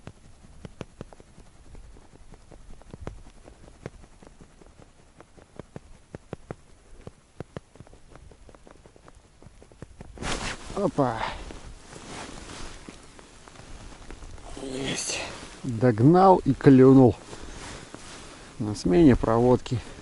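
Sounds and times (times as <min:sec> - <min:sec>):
low wind rumble: 0:07.8 - 0:20.0
light clicks and taps of fishing gear: 0:11.3 - 0:14.5.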